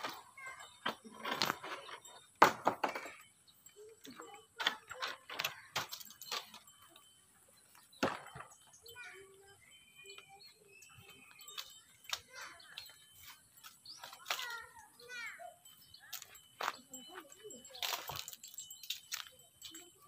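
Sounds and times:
wooden ladder knocking and clattering: 0.8s - 3.2s.

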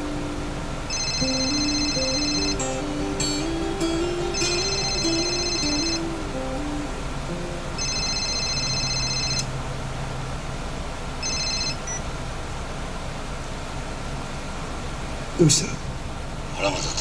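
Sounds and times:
soft background music: 0.0s - 11.5s
electronic telephone ringing: 0.9s - 2.7s, 4.3s - 6.1s, 7.8s - 9.5s, 11.2s - 12.0s.

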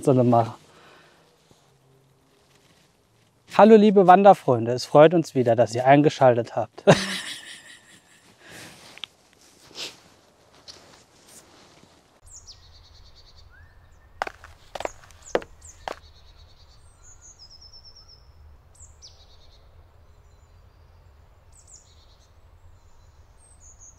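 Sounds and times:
birds chirping and trilling: 12.3s - 23.9s.

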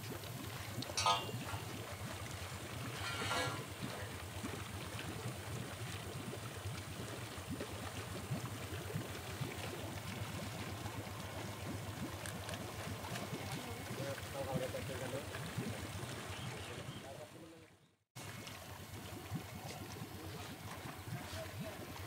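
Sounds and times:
water splashing and gurgling: 0.0s - 17.4s, 18.2s - 22.0s
low machine hum: 0.1s - 14.9s.

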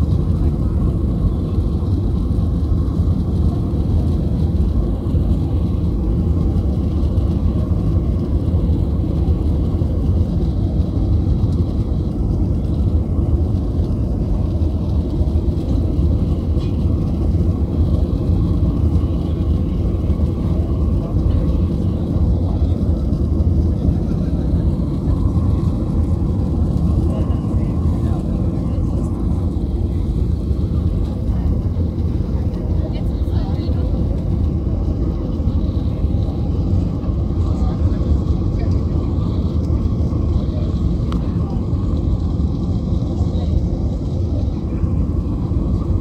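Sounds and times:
jet engine cabin noise: 0.0s - 46.0s.

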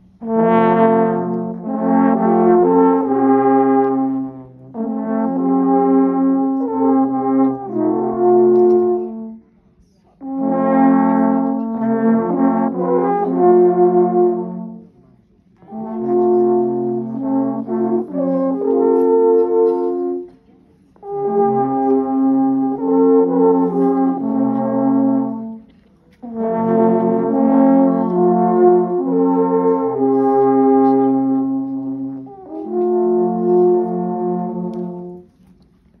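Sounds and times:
alphorns playing long notes: 0.2s - 9.2s, 21.0s - 35.3s.

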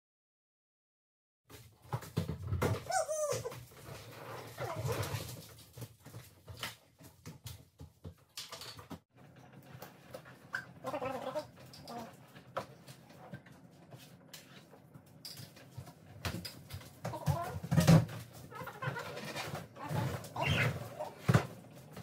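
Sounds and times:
small dog whining: 2.8s - 3.6s.

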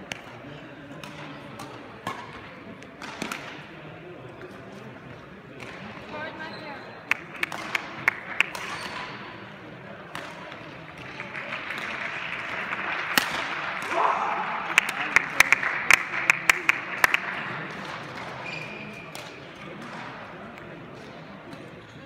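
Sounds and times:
voices echoing in hall: 0.0s - 22.0s
racket striking shuttlecock: 8.4s - 9.2s, 13.1s - 14.0s.

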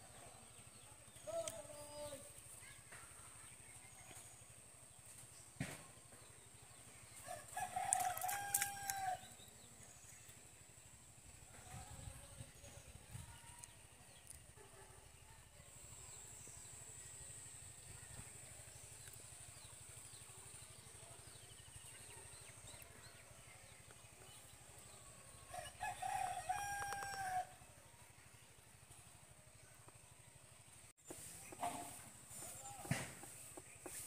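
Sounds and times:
rooster crowing: 7.3s - 9.2s, 25.5s - 27.5s.

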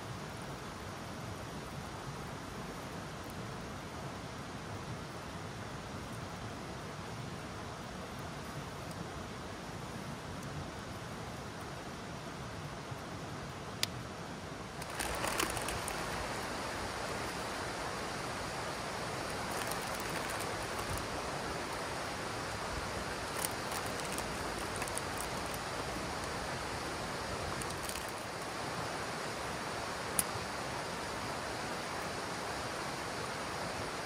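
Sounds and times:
fire crackles: 0.0s - 34.0s
wood fire hissing: 0.0s - 34.0s.

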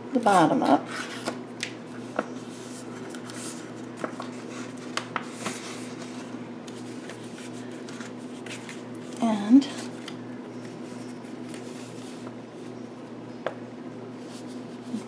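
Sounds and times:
steady low hum: 0.0s - 15.0s
paper rustling: 2.0s - 12.7s.

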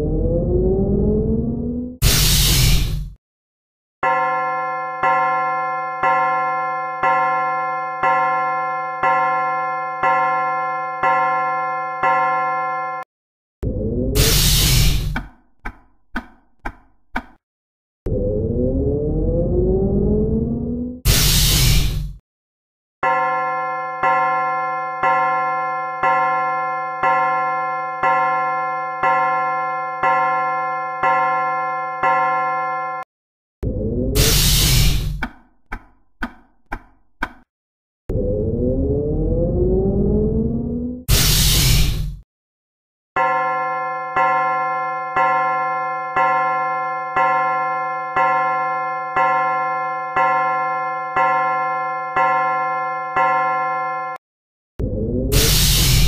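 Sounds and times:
clock bell chiming: 4.0s - 12.7s, 23.0s - 32.6s, 43.2s - 53.9s.

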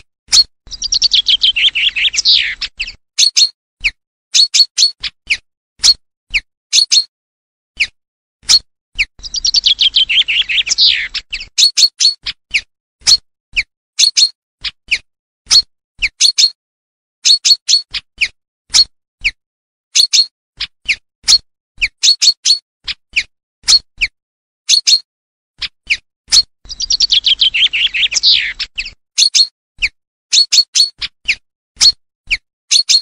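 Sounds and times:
falling bird trill: 0.7s - 3.6s, 9.0s - 12.3s, 25.9s - 31.4s.

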